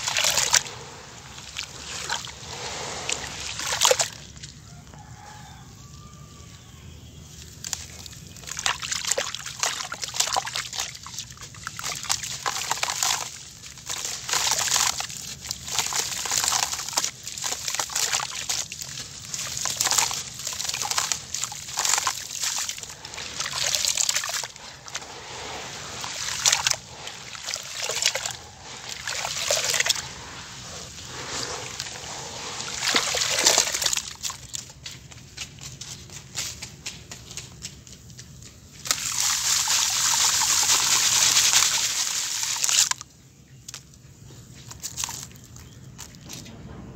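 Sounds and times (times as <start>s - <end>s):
dried mud crumbling into water: 0.0s - 4.6s, 7.4s - 36.9s, 38.8s - 43.9s, 44.6s - 46.4s
water sloshing and splashing: 0.0s - 4.6s, 7.6s - 34.7s, 38.8s - 43.0s.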